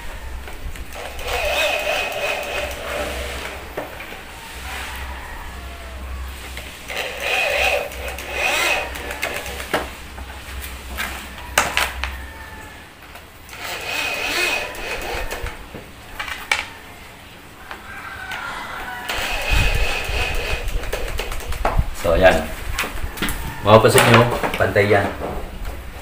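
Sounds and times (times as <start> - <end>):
power drill driving screws: 0.9 - 3.6, 6.9 - 9.9, 13.5 - 15.6, 19.1 - 21.3.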